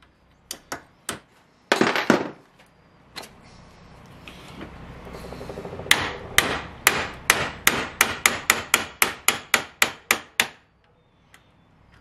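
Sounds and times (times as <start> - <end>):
hammer striking steel punch: 5.9 - 10.6.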